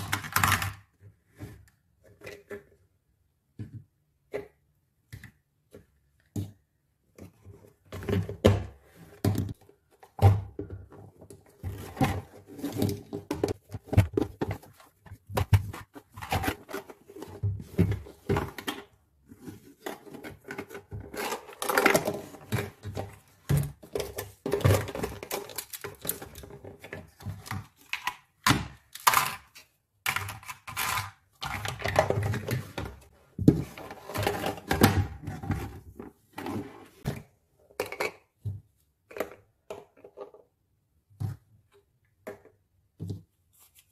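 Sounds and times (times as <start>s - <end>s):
plastic toy pieces clattering: 23.9s - 26.7s, 27.7s - 32.5s.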